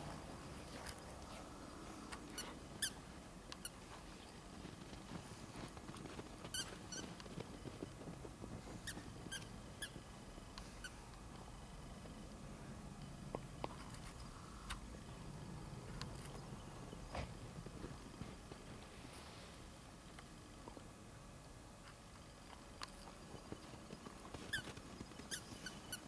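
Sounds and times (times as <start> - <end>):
squeaky dog toy squeaking: 2.4 - 3.0, 24.4 - 26.0.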